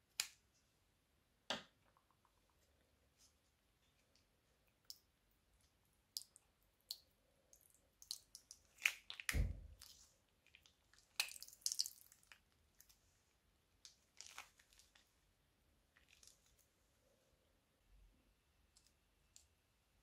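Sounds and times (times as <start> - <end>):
slime squelching: 4.7 - 13.0, 13.8 - 15.1.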